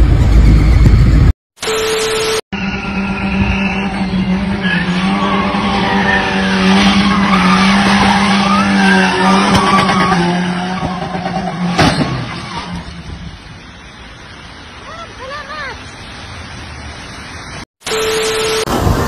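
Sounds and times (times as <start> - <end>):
car engine at high revs: 2.6 - 13.2
tyres squealing: 3.2 - 12.8.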